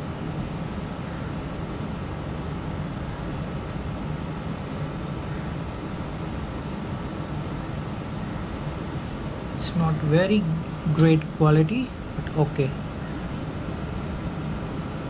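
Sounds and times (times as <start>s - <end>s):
low hum: 0.0s - 15.0s
continuous rush: 9.0s - 12.8s.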